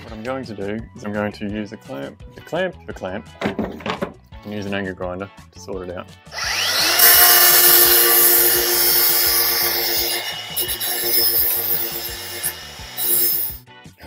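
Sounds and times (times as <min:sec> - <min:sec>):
angle grinder grinding steel: 0:06.4 - 0:13.6.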